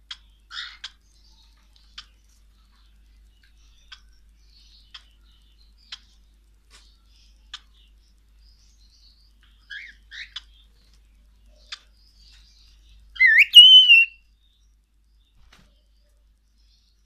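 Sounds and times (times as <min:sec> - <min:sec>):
cockatiel chirps and clicks: 0:00.1 - 0:01.0, 0:13.2 - 0:14.2
cockatiel rising whistle: 0:13.2 - 0:14.1.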